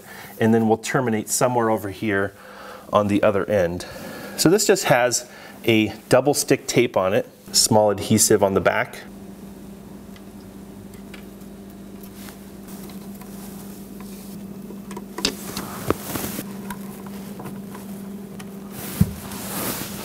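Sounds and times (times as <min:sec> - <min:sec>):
steady low hum: 0:00.0 - 0:20.0
tape rustling: 0:15.2 - 0:17.9.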